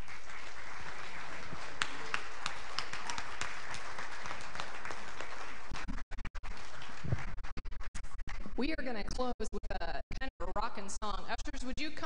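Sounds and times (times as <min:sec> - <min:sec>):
sharp individual claps: 0:00.0 - 0:07.2
congregation clapping: 0:00.0 - 0:07.8.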